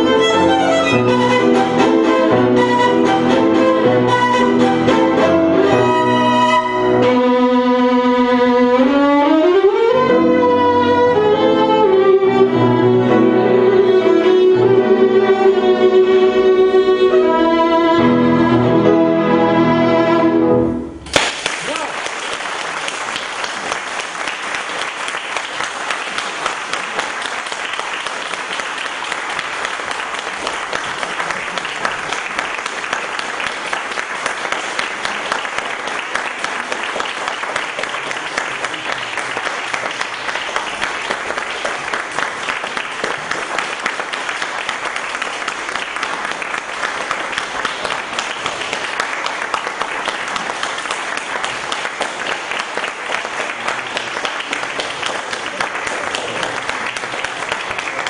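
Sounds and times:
audience applauding: 0.0 - 7.1, 21.1 - 58.0.

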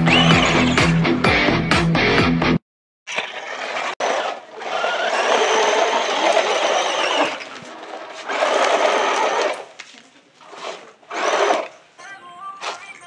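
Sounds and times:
electric motor and gearbox whirring: 0.0 - 1.0, 3.1 - 9.8, 10.4 - 11.8.

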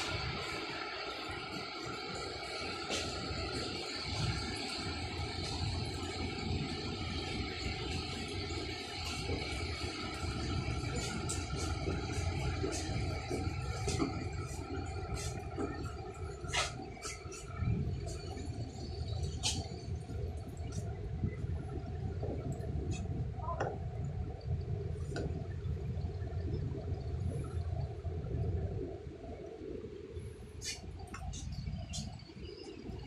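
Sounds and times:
faint hum: 0.0 - 33.0.

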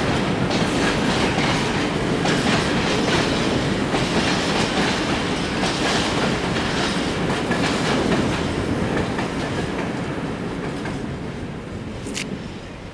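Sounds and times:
train rumble: 0.0 - 12.9
train wheels clattering over rail joints: 0.4 - 10.0.

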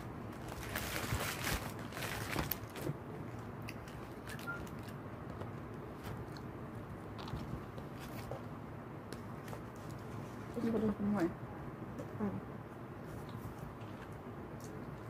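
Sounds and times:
crunchy chewing: 5.9 - 8.5.

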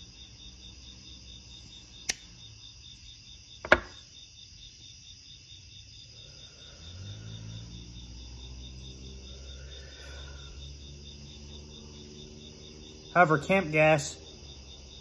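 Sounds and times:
crickets chirping: 0.0 - 15.0
lighter clicking: 2.1 - 2.3
lighter lid snapping shut: 2.1 - 2.3.

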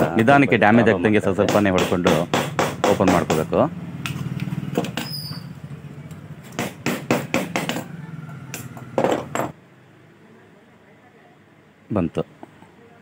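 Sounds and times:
hammer tapping metal: 1.4 - 5.2, 6.5 - 9.6.

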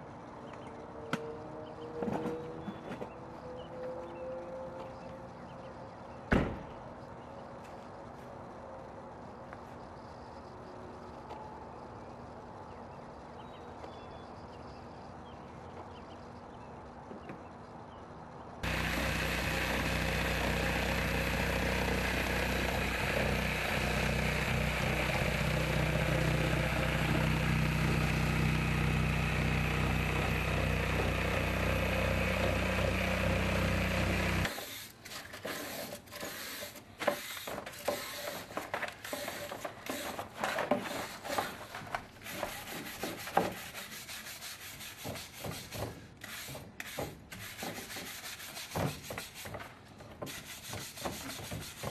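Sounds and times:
power tool cutting drywall: 18.6 - 38.5.

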